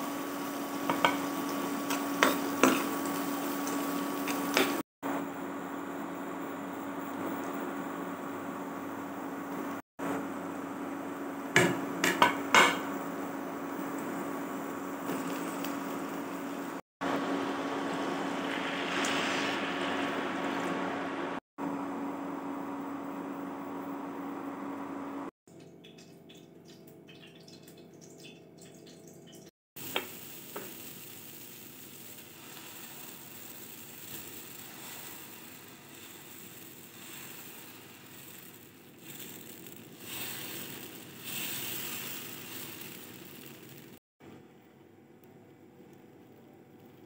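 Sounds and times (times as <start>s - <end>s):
potatoes frying in pan: 0.0s - 4.8s, 11.1s - 17.4s, 29.8s - 44.0s
batter sizzling on hot pan: 0.0s - 4.9s, 29.8s - 44.0s.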